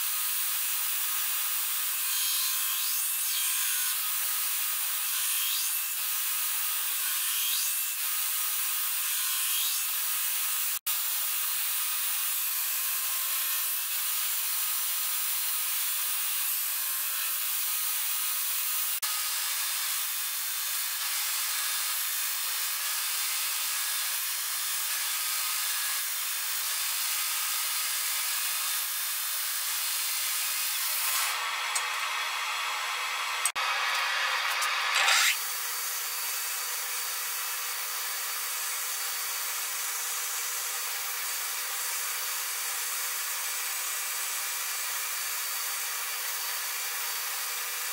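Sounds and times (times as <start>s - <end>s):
belt grinder grinding steel blade: 28.2s - 37.1s.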